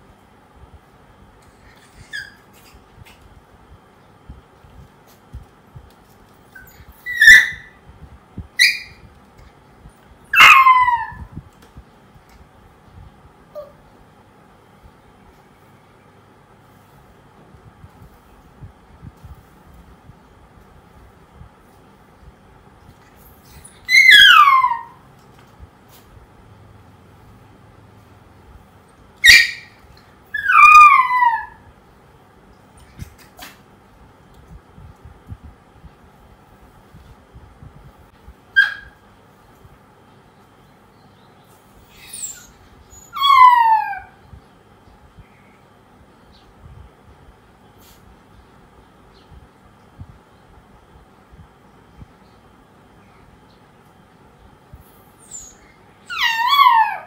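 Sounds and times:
puppy yelping cries: 1.7s - 2.8s, 6.5s - 7.8s, 8.6s - 9.0s, 10.3s - 11.3s, 23.6s - 25.1s, 29.2s - 31.7s, 38.6s - 39.0s, 41.9s - 44.2s, 55.2s - 57.0s.

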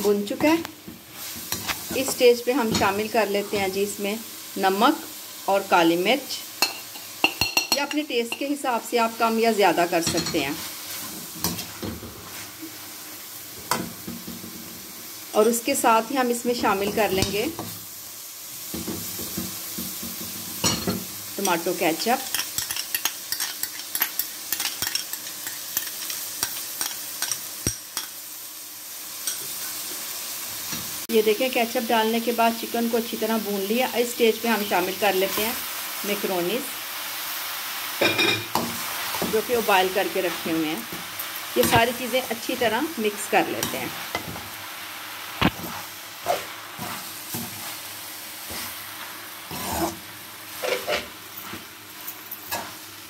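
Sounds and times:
chicken sizzling in a pan: 0.0s - 53.0s
spatula scraping pan: 45.5s - 51.7s.

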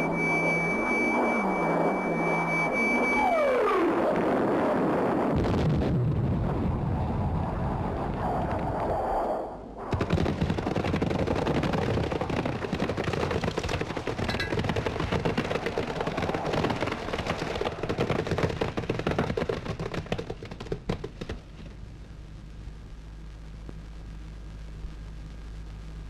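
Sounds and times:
low rumble: 3.9s - 9.9s
explosion blasts: 4.2s - 8.8s, 9.8s - 11.3s
machine-gun fire: 9.8s - 21.4s.

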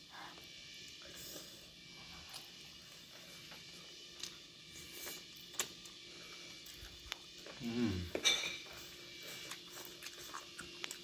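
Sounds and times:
chewing and lip smacks: 5.0s - 6.0s, 9.2s - 11.0s.

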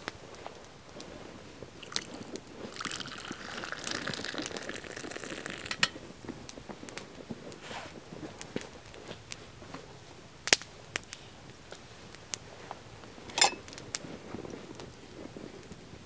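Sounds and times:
coffee pouring into a cup: 1.8s - 6.0s.

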